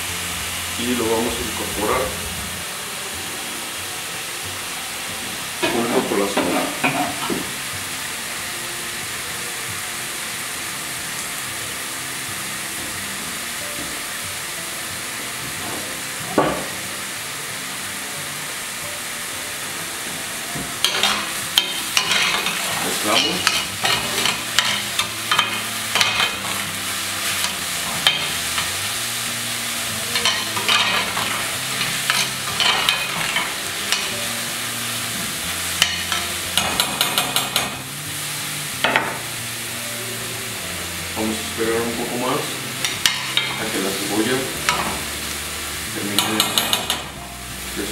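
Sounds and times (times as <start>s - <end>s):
onion sizzling in oil: 0.0s - 47.9s
spoon scraping a pan: 20.8s - 26.6s, 30.1s - 34.1s.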